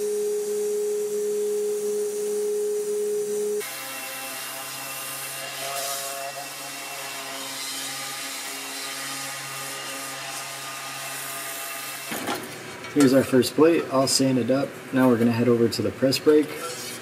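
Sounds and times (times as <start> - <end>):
sanding pad hissing on metal: 3.3 - 12.0.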